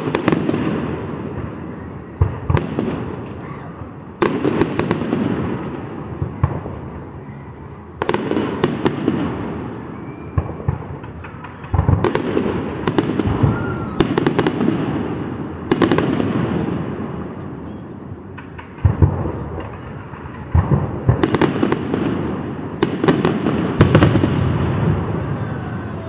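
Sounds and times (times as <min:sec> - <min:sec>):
fireworks shells booming: 0:18.3 - 0:25.3.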